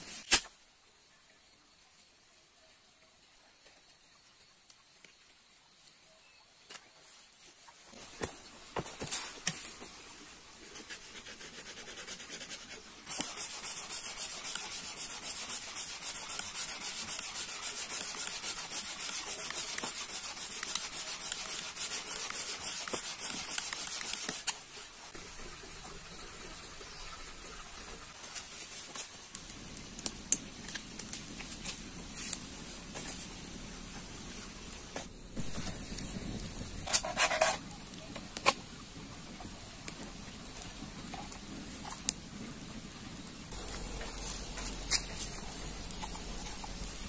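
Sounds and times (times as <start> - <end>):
bamboo rubbing on bamboo: 10.6 - 24.8, 28.1 - 38.9, 43.4 - 47.0.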